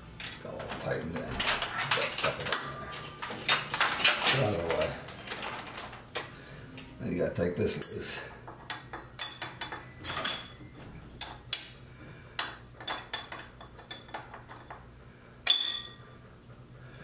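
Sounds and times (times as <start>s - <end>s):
hand tool clinking on metal: 0.2s - 5.5s.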